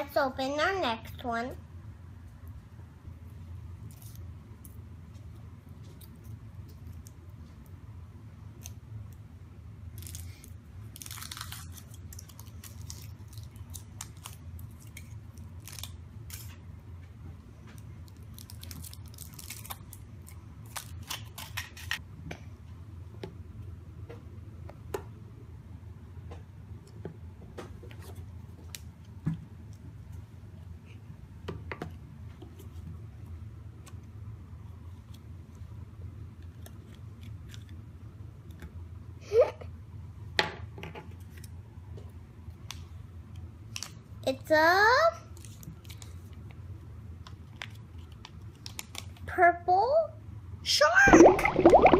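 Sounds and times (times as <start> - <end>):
foil wrapper crinkling and tearing: 10.0 - 16.5, 18.1 - 22.0, 47.5 - 49.3.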